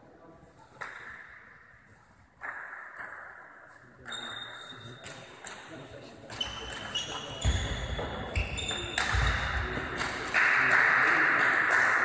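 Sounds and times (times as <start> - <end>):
shoes squeaking on floor: 6.3 - 9.7.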